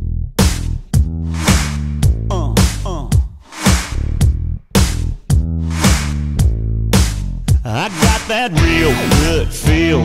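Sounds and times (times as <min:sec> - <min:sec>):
instrumental country-pop music: 0:04.8 - 0:10.0.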